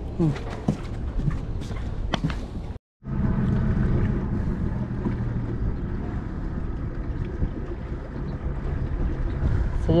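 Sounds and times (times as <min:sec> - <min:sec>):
wind on microphone: 0:01.2 - 0:10.0
boat engine running: 0:03.0 - 0:10.0.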